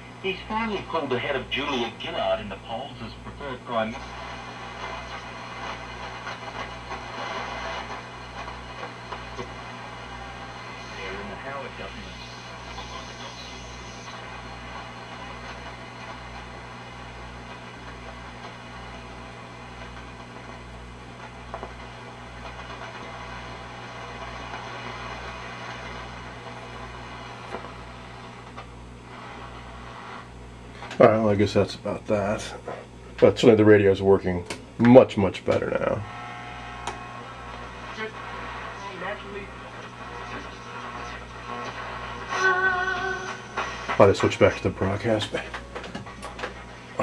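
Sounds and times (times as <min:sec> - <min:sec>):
mains hum: 0:00.0 - 0:47.0
radio static and hiss: 0:00.0 - 0:47.0
faint voice on radio: 0:10.8 - 0:14.3.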